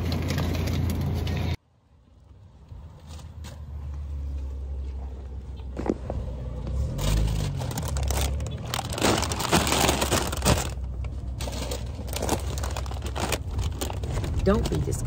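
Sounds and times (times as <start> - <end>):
low rumble: 4.0 - 15.0
plastic bags rustling: 6.8 - 15.0
cartons knocking down: 7.0 - 10.8.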